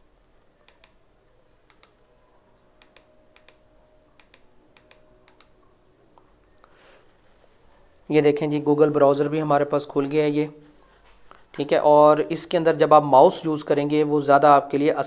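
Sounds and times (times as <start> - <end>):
low steady hum: 0.0 - 15.0
small buttons clicking: 0.6 - 1.0, 1.6 - 2.0, 2.8 - 3.6, 4.2 - 5.6.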